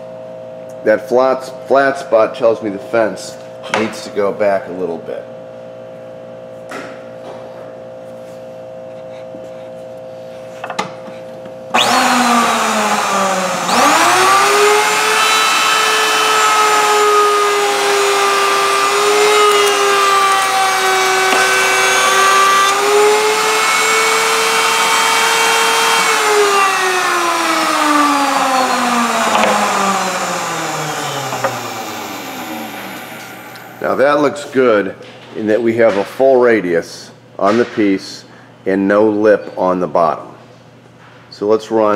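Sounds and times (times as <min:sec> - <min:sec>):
router motor whine: 0:11.7 - 0:34.0
router bit cutting wood: 0:11.8 - 0:34.0.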